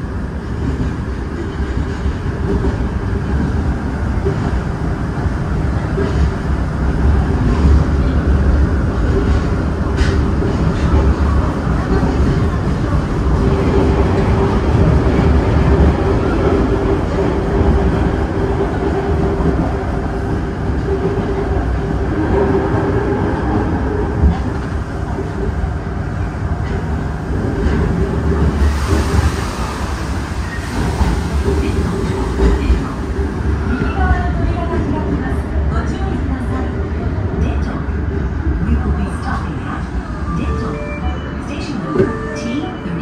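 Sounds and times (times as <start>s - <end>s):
train wheels rumbling on rails: 0.0s - 43.0s.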